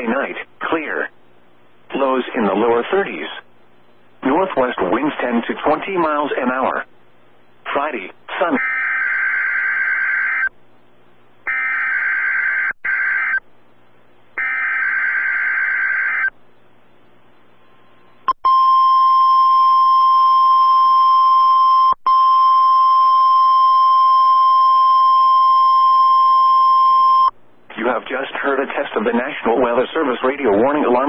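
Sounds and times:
steady warning alarm tone: 8.5 - 10.5, 11.5 - 13.4, 14.4 - 16.3.

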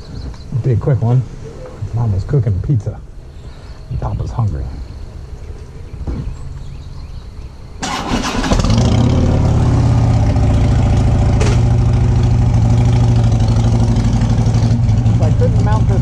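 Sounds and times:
electric starter cranking: 7.8 - 9.1
motorcycle engine idling: 8.9 - 16.0.

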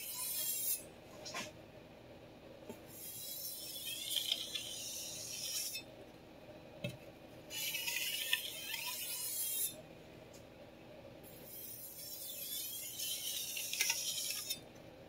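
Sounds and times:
knife scraping a sharpening stone: 3.1 - 5.9, 7.5 - 9.8, 11.6 - 14.6.

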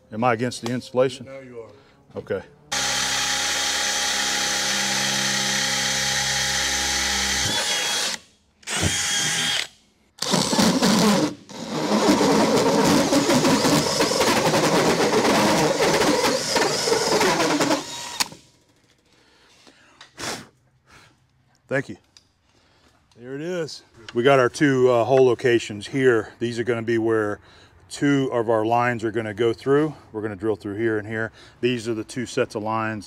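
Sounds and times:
cordless drill whining: 2.7 - 18.6.

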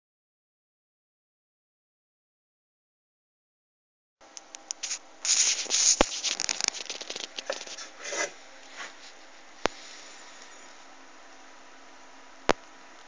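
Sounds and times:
faint steady hum: 4.2 - 13.0
scratchy rubbing and rustling: 4.8 - 10.0.

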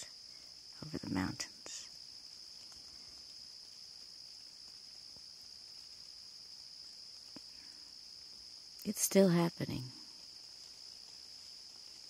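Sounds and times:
insects trilling: 0.0 - 12.0
faint ticks: 1.4 - 9.0, 10.0 - 12.0.

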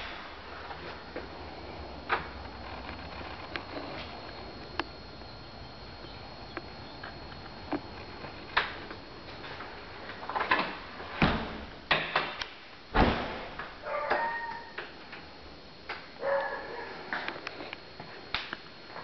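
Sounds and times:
door squeaking: 13.8 - 14.8.

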